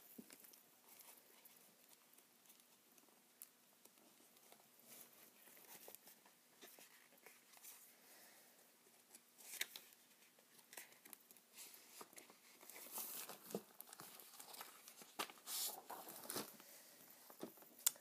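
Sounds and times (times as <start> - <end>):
paper sheets rustling: 9.4 - 17.6.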